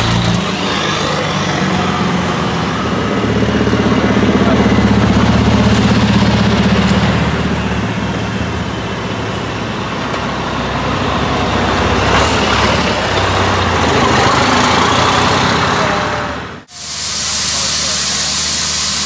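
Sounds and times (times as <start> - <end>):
diesel trucks driving past: 0.0 - 17.8
air hiss: 16.7 - 19.0.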